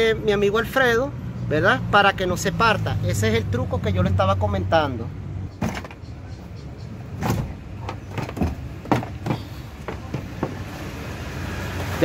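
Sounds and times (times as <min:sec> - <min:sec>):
sharp clicks and knocks: 0:07.2 - 0:10.6.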